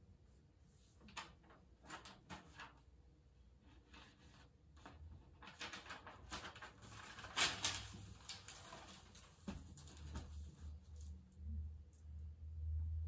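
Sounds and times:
paper rustling: 1.0 - 2.8, 3.7 - 11.2.

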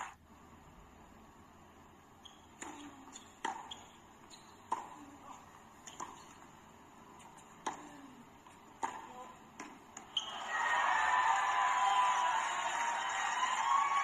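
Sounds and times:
tennis ball bouncing: 2.2 - 10.4
tennis racket hitting ball: 2.5 - 6.5, 7.1 - 10.4.

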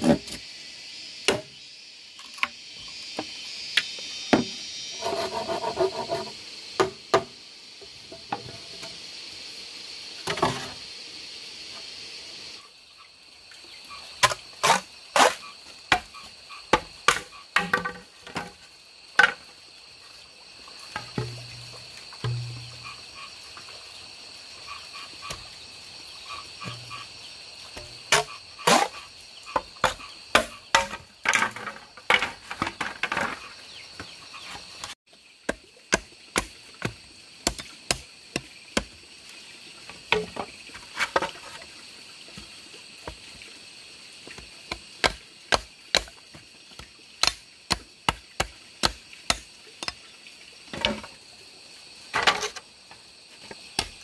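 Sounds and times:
high-pitched wildlife chorus: 7.4 - 35.4
hand tool striking bamboo: 22.2 - 22.8, 29.8 - 31.8, 35.5 - 38.9, 44.7 - 46.2, 46.8 - 50.0.

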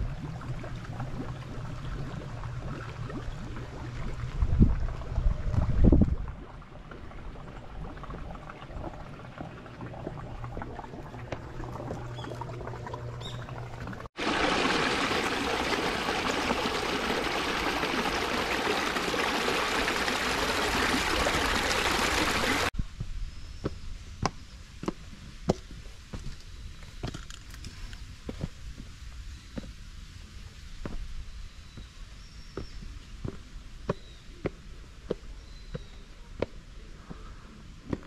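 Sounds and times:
low hum: 0.0 - 24.2
rushing water: 9.6 - 22.7
bird chirps: 13.2 - 13.6.

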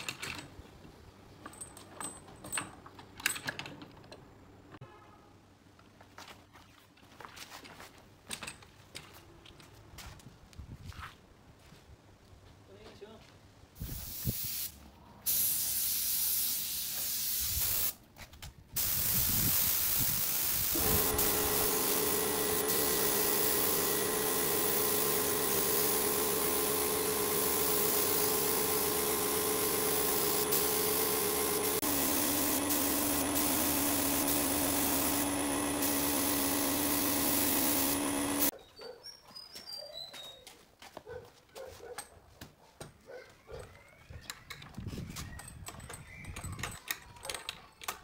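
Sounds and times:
spray gun hissing: 13.8 - 18.0, 18.8 - 38.5.

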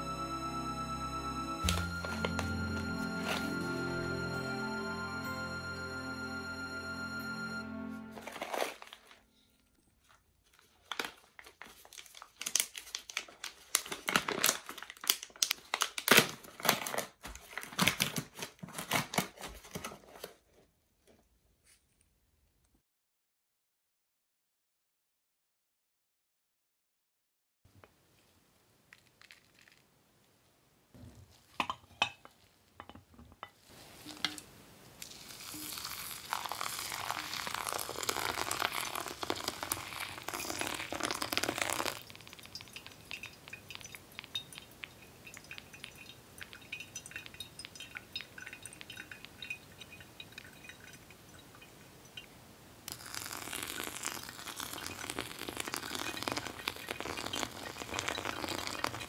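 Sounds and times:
wet coffee grounds fizzing: 10.0 - 19.0, 33.7 - 59.0
hot water pouring onto coffee: 35.0 - 59.0.

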